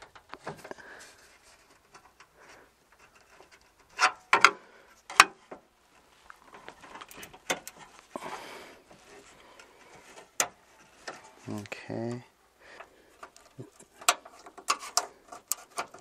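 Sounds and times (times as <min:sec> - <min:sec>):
plastic plug clicking and rattling: 0:13.2 - 0:16.0.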